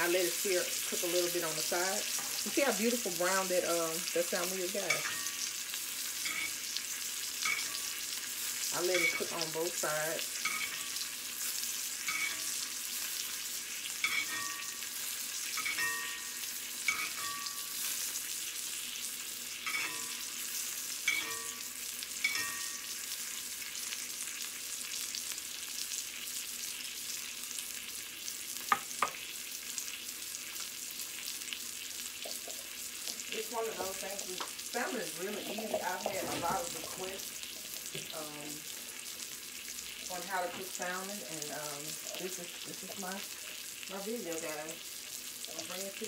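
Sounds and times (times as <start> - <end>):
fish sizzling in oil: 0.0 - 46.0
metal utensil scraping a pan: 4.7 - 18.2, 19.6 - 23.1
clattering noises: 35.4 - 37.1.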